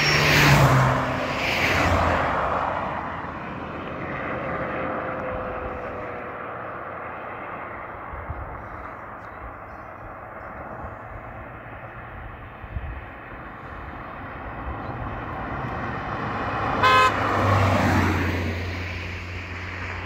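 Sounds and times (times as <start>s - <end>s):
car passing by: 0.0s - 20.0s
car horn toot: 16.7s - 17.4s.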